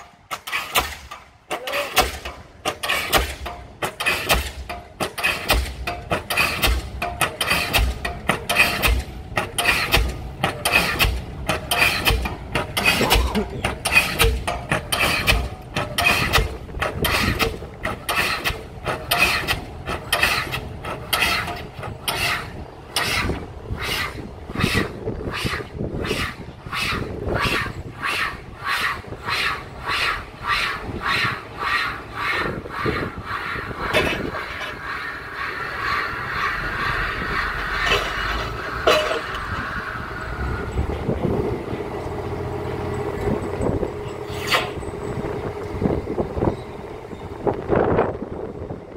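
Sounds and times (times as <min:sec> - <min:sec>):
diesel pile hammer pounding: 0:00.0 - 0:39.6
sharp metallic clank: 0:37.9 - 0:39.5.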